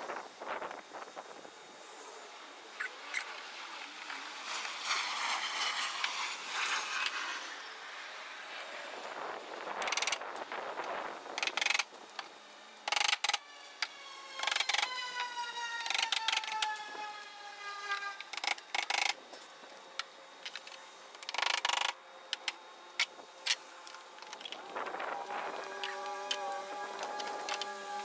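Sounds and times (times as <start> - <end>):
pitched tone gliding downward: 24.6 - 28.0.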